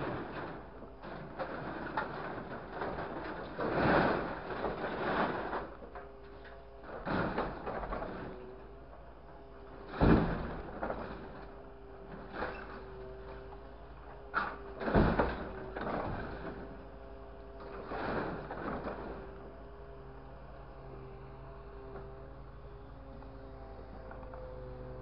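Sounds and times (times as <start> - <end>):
scrap metal clattering and scraping: 0.0 - 8.8, 9.7 - 16.9, 17.6 - 19.4
steady mechanical hum: 0.0 - 25.0.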